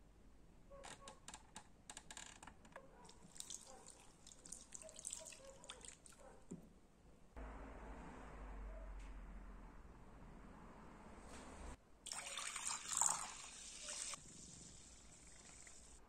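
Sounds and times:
liquid pouring and splashing: 0:03.1 - 0:06.2, 0:12.1 - 0:16.0.

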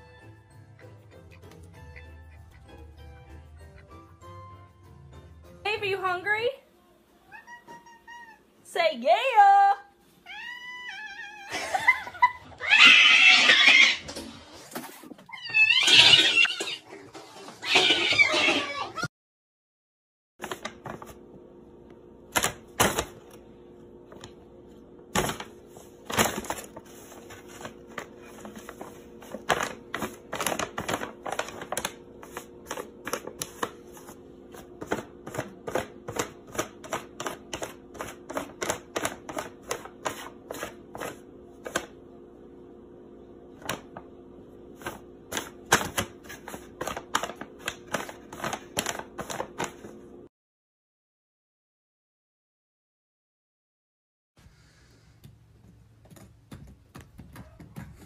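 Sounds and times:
paper bag crinkling: 0:20.4 - 0:21.2, 0:25.1 - 0:41.8, 0:44.8 - 0:50.0
faint hum: 0:20.4 - 0:50.3.

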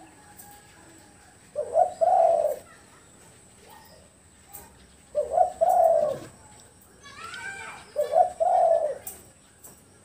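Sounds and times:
dove cooing: 0:01.5 - 0:02.9, 0:05.1 - 0:06.4, 0:07.9 - 0:09.3.

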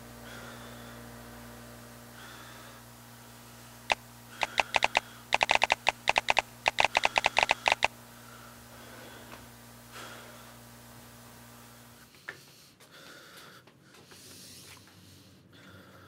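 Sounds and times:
low steady hum: 0:00.0 - 0:12.0
sharp clicks: 0:03.9 - 0:07.9.

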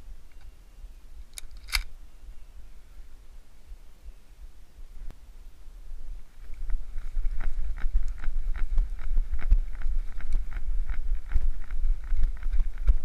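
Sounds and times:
wind rumble on microphone: 0:05.8 - 0:13.0.

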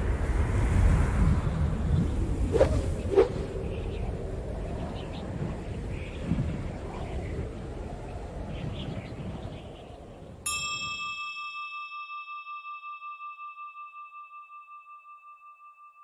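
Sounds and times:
rushing wind: 0:00.0 - 0:11.0
struck bell ringing: 0:10.5 - 0:16.0.

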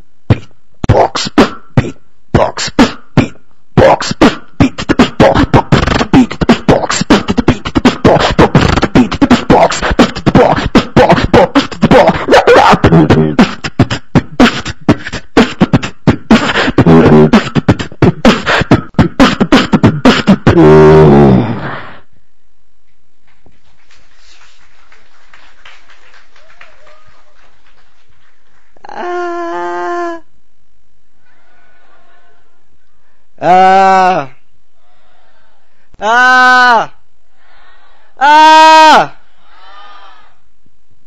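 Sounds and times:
beatboxing: 0:00.0 - 0:22.1.

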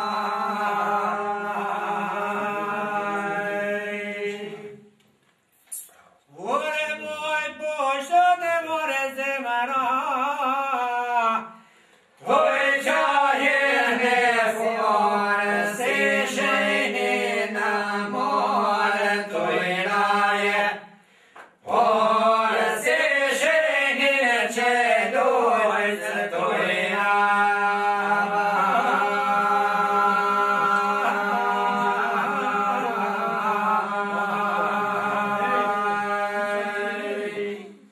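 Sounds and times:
men singing polyphonic song: 0:00.0 - 0:04.9, 0:12.2 - 0:37.9.

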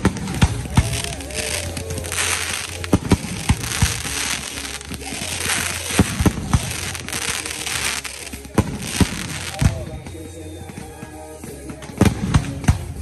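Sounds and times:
fireworks bursting: 0:00.0 - 0:13.0.

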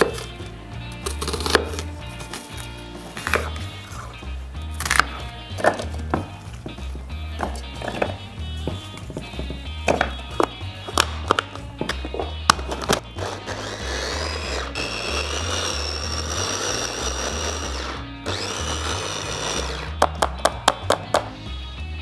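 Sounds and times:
background music with steady beat: 0:00.0 - 0:22.0
electric chopper whirring: 0:12.7 - 0:20.1.

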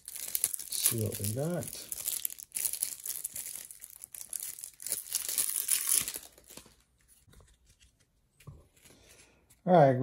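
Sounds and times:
plastic shrink-wrap crinkling: 0:00.0 - 0:07.3.

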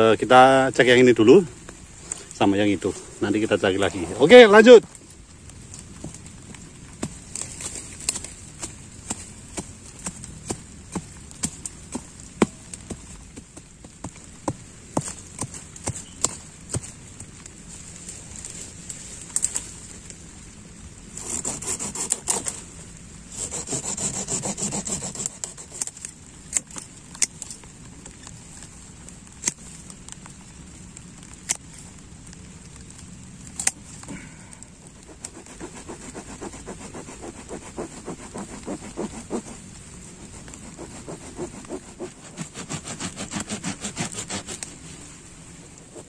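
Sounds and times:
twigs snapping: 0:04.7 - 0:20.2, 0:23.4 - 0:44.8
hand saw cutting stems: 0:21.2 - 0:22.6, 0:23.3 - 0:26.7, 0:34.9 - 0:39.6, 0:40.2 - 0:44.8.

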